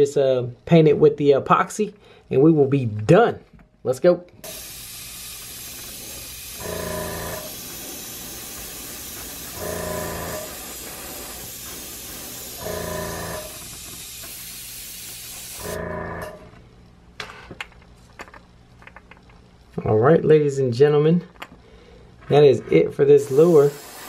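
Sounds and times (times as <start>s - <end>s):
airbrush hissing air: 4.4s - 15.8s, 23.0s - 24.0s.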